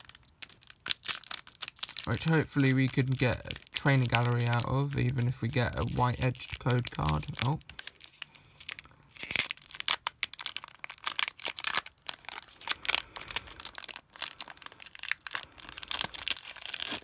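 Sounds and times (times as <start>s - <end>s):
foil wrapper crinkling and tearing: 0.0s - 17.0s.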